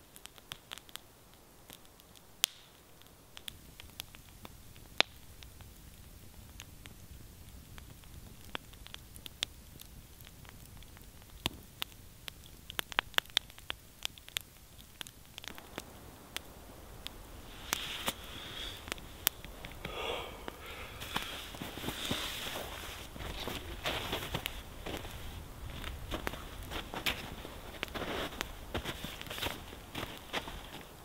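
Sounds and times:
campfire crackling and popping: 0:00.0 - 0:31.0
rustling noise: 0:15.5 - 0:19.9, 0:20.5 - 0:31.0.

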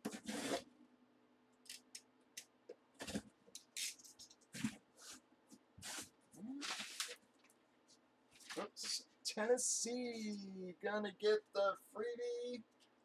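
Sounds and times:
blade slitting packing tape: 0:00.0 - 0:00.6, 0:03.6 - 0:04.1
cardboard flaps scraping and rustling: 0:00.0 - 0:00.6, 0:05.8 - 0:07.2.

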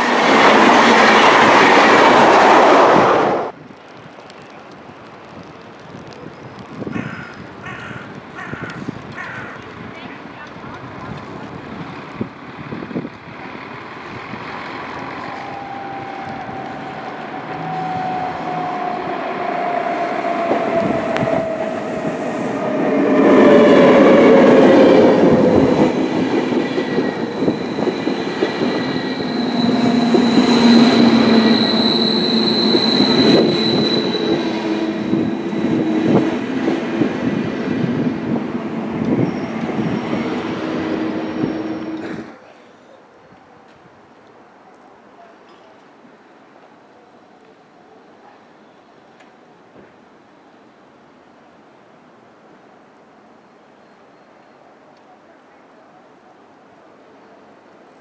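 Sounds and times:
train whine: 0:00.0 - 0:03.6, 0:11.4 - 0:42.4
train wheels rumbling and clattering: 0:00.0 - 0:42.3
high squeal: 0:15.1 - 0:24.3, 0:26.8 - 0:36.4, 0:39.2 - 0:42.3.

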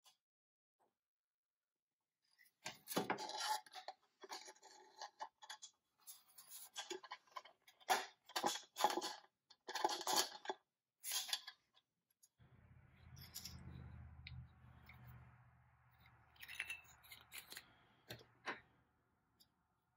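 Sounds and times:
metal toy truck clicking and scraping: 0:02.6 - 0:11.9, 0:13.0 - 0:15.2, 0:15.9 - 0:18.6.

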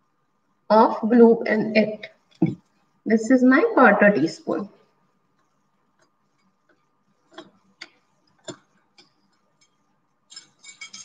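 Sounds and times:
metal measuring spoons clicking: 0:09.6 - 0:11.0.

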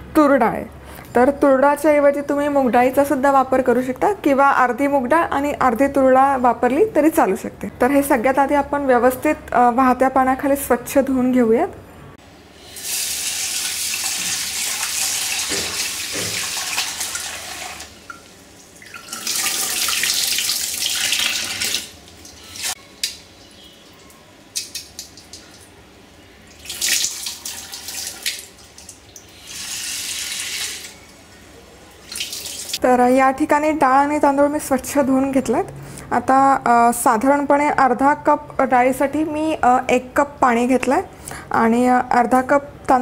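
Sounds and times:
tap water running into pot: 0:12.6 - 0:23.2, 0:26.5 - 0:31.0.

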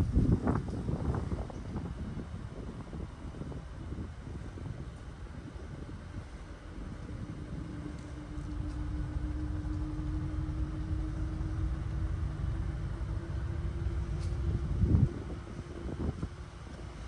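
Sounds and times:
motor vehicle running: 0:04.8 - 0:17.0.

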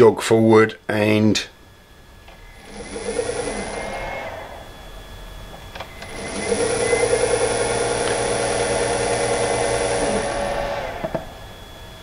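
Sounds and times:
high whine from drive: 0:00.0 - 0:12.0
electric motor spinning: 0:02.2 - 0:11.7.

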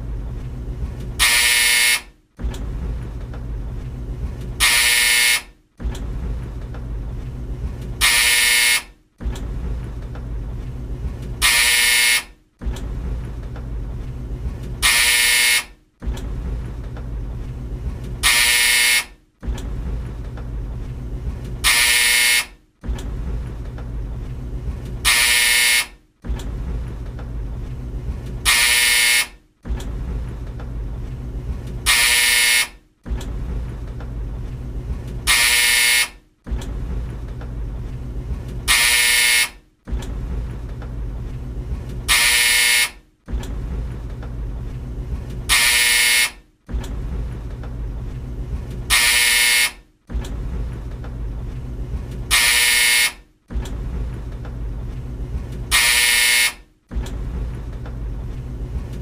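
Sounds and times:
tumble dryer rumbling: 0:00.0 - 0:56.1, 0:56.8 - 0:59.0
dryer buzzer: 0:01.2 - 0:02.2, 0:04.6 - 0:05.6, 0:08.0 - 0:09.0, 0:11.4 - 0:12.4, 0:14.8 - 0:15.8, 0:18.2 - 0:19.2, 0:21.6 - 0:22.6, 0:25.0 - 0:26.0, 0:28.4 - 0:29.4, 0:31.8 - 0:32.8, 0:35.2 - 0:36.2, 0:38.7 - 0:39.7, 0:42.1 - 0:43.1, 0:45.5 - 0:46.5, 0:48.9 - 0:49.9, 0:52.3 - 0:53.3, 0:55.7 - 0:56.7.

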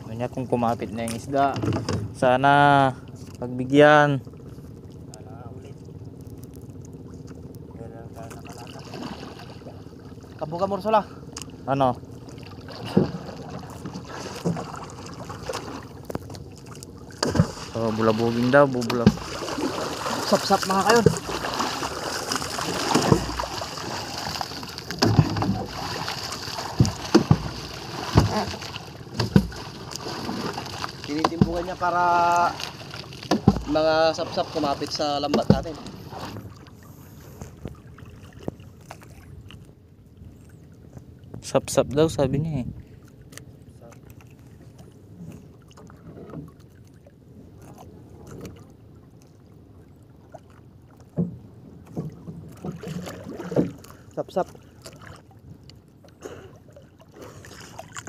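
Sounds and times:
low background rumble: 0:00.0 - 0:52.5
knocks on boat: 0:01.4 - 0:02.2, 0:12.8 - 0:14.7, 0:17.2 - 0:17.8, 0:18.8 - 0:19.4, 0:20.5 - 0:21.4, 0:22.8 - 0:23.5, 0:24.9 - 0:25.8, 0:26.6 - 0:30.6, 0:31.2 - 0:31.8, 0:33.2 - 0:33.9, 0:35.2 - 0:36.5, 0:51.1 - 0:53.8
pole thumping water with splashes: 0:08.2 - 0:09.8, 0:12.3 - 0:36.8, 0:37.4 - 0:39.6, 0:50.3 - 0:58.0.

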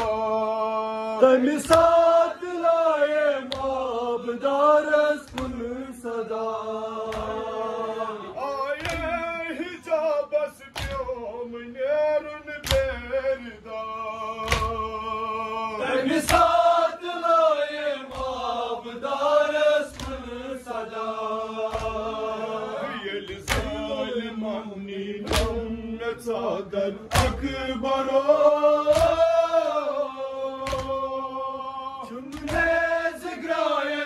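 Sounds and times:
men chanting a lament: 0:00.0 - 0:34.0
hands slapping chests: 0:01.6 - 0:02.1, 0:03.4 - 0:03.9, 0:05.2 - 0:05.7, 0:07.0 - 0:07.6, 0:08.8 - 0:09.2, 0:10.7 - 0:11.2, 0:12.6 - 0:13.1, 0:14.4 - 0:15.1, 0:16.0 - 0:16.8, 0:18.0 - 0:18.7, 0:19.5 - 0:20.5, 0:21.6 - 0:22.3, 0:23.3 - 0:23.9, 0:25.2 - 0:25.7, 0:27.1 - 0:27.6, 0:28.8 - 0:29.9, 0:30.6 - 0:31.2, 0:32.2 - 0:33.0.

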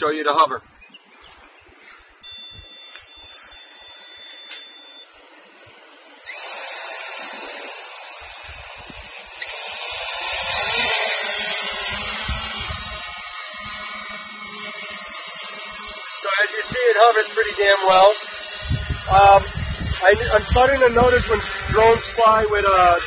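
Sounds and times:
quadcopter motors buzzing: 0:01.9 - 0:23.0
high-pitched tone: 0:02.2 - 0:05.3, 0:10.4 - 0:23.0
low rumble: 0:18.5 - 0:23.0.

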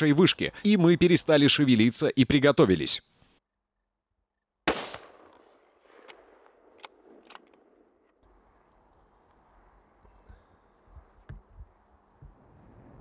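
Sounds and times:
rifle shot echoing: 0:04.7 - 0:08.1.

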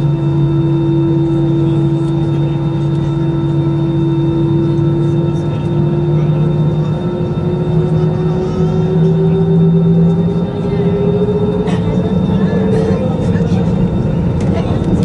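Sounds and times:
jet engines humming in cabin: 0:00.0 - 0:15.0.

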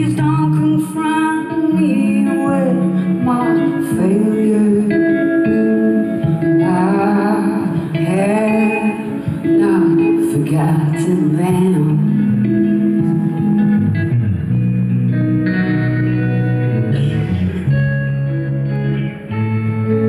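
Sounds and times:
woman singing: 0:00.0 - 0:13.1
electric guitar: 0:00.0 - 0:20.0.

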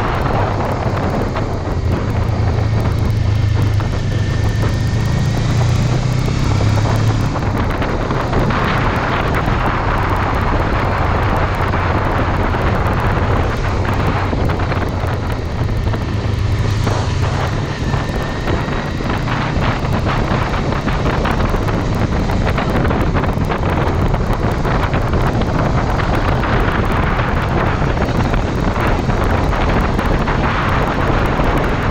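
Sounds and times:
motorcycle engine hum: 0:00.0 - 0:31.9
wind noise on microphone: 0:00.0 - 0:31.9.

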